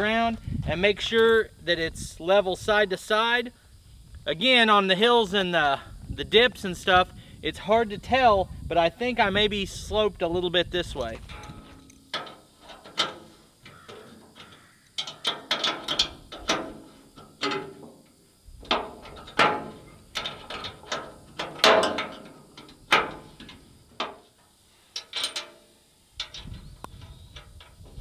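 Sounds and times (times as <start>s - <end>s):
metal rattles: 10.9s - 28.0s.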